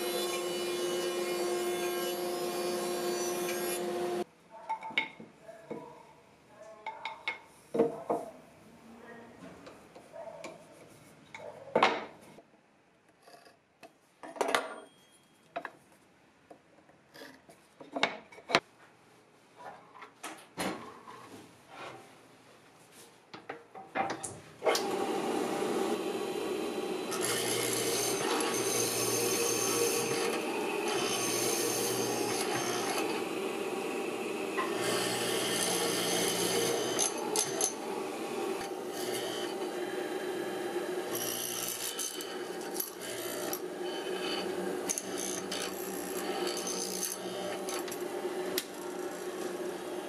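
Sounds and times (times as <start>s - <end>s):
chisel cutting wood: 24.7s - 50.0s
mortiser running: 24.8s - 50.0s.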